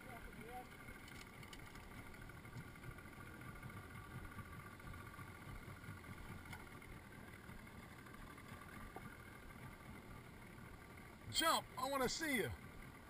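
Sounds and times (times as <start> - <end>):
boat low rumble with hiss: 0.0 - 13.0.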